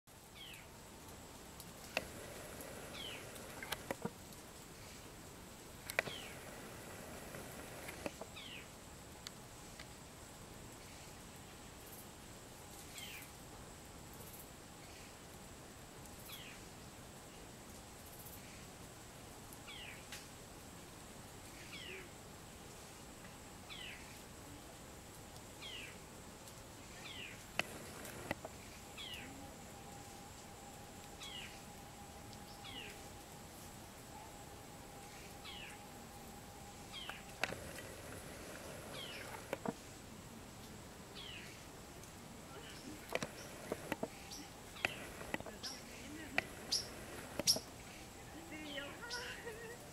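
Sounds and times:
faint steady high tone: 26.8s - 40.4s, 42.4s - 49.9s
sharp clicks: 42.8s - 47.7s.

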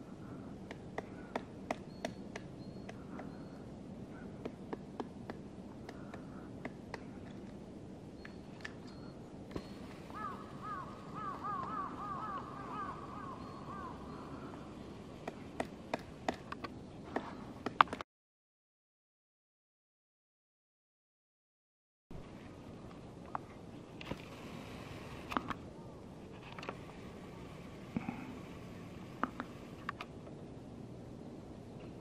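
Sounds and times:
woodpecker tapping on tree trunk: 0.6s - 3.4s, 4.4s - 7.6s, 9.5s - 13.9s
bird calling ringing notes: 1.8s - 4.3s, 8.1s - 15.4s.

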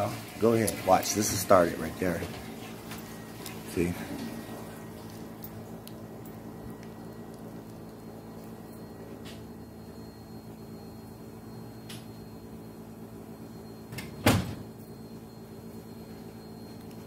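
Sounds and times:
low household hum: 0.0s - 17.0s
door or cupboard banging shut: 14.2s - 14.6s.

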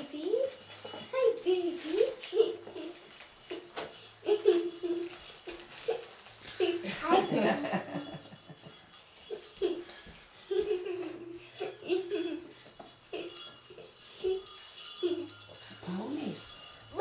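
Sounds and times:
small jingle bells: 0.0s - 17.0s
children giggling: 2.3s - 15.4s.

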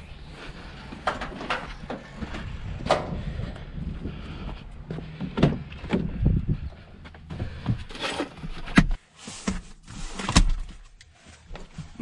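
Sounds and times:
low rumble: 0.0s - 7.9s
irregular knocks and clunks: 4.8s - 9.6s.

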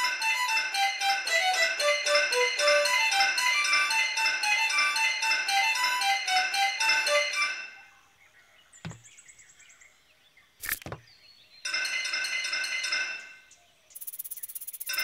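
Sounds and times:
bell-like music: 0.0s - 7.9s
rapid high ticking rattle: 14.0s - 15.0s.

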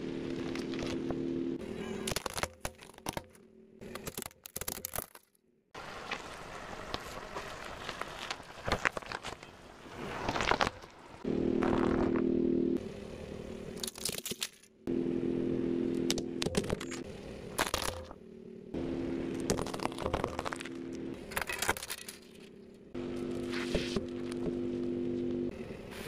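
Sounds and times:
car tyre crushing toys: 1.8s - 12.1s, 16.4s - 18.2s, 19.3s - 22.5s.

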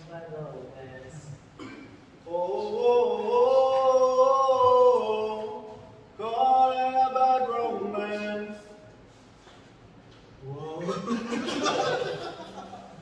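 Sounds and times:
men singing unaccompanied: 2.2s - 8.8s.

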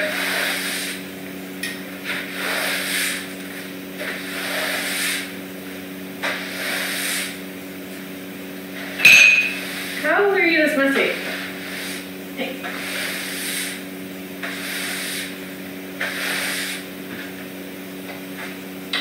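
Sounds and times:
broom sweeping hard floor: 0.0s - 1.1s, 2.0s - 5.4s, 6.2s - 7.4s, 8.8s - 13.8s, 14.4s - 17.3s.

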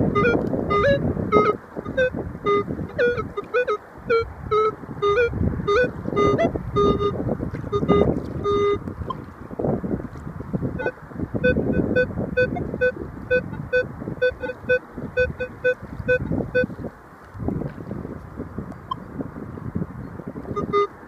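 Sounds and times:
wind buffeting microphone: 0.0s - 21.0s
metal detector beeping: 0.1s - 8.8s, 10.8s - 16.7s, 20.5s - 21.0s.

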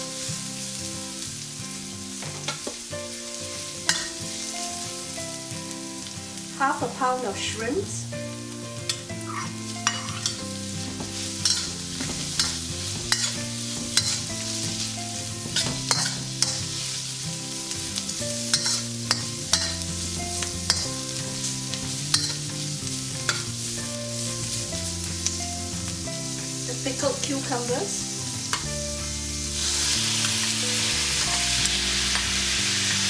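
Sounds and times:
food sizzling in hot oil: 0.0s - 33.0s
metal spatula clinking on wok: 11.4s - 11.7s, 13.1s - 13.4s, 15.9s - 16.6s, 18.5s - 19.8s, 22.1s - 22.4s.

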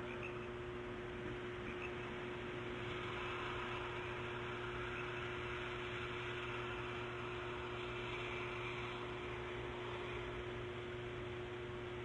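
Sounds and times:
constant mid-pitched tone: 0.0s - 12.0s
low hum: 0.0s - 12.0s.

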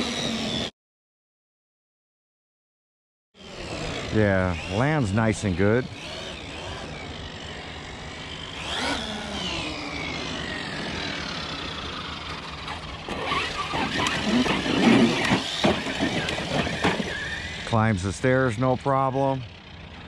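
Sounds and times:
electric motor whining: 0.0s - 0.7s, 3.4s - 19.9s
toy truck knocking and rattling: 12.6s - 17.6s.

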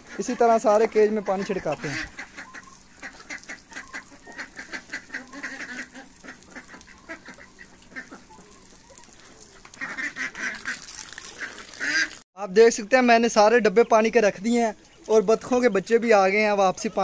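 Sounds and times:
ducks quacking: 0.0s - 12.2s.

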